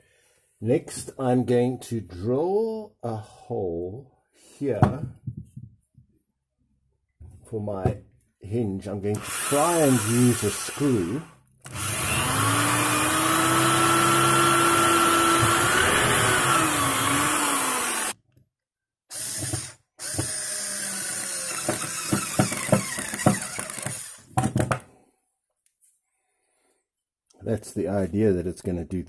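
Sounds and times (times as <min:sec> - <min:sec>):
electric drill boring into wood: 0:09.1 - 0:18.2, 0:19.1 - 0:24.3.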